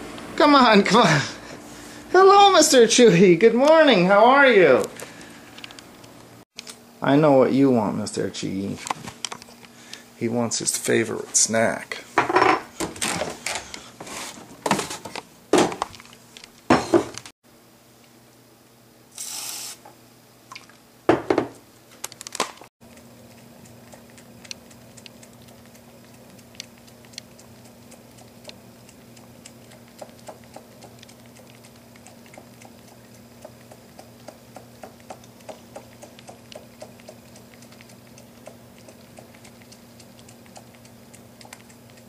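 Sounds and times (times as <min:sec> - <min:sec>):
aerosol whipped cream hiss: 0:19.1 - 0:19.8
cat licking wet clicks: 0:22.9 - 0:42.0.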